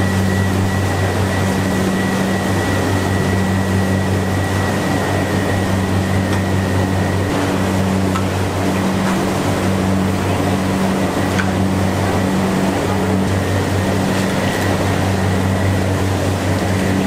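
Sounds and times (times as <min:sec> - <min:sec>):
kitchen machinery drone: 0:00.0 - 0:17.0.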